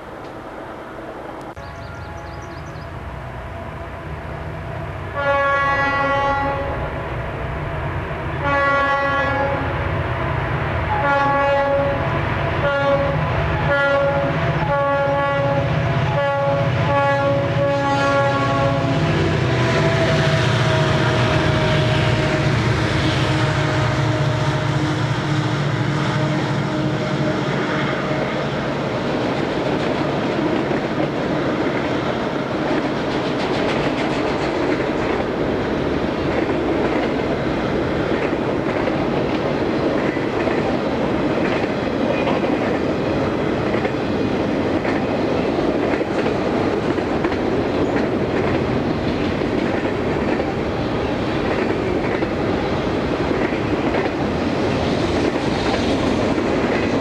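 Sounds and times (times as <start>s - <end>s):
train rumbling: 0.0s - 57.0s
locomotive air horn blasts: 5.2s - 6.8s, 8.4s - 9.8s, 10.9s - 12.0s, 12.6s - 28.4s.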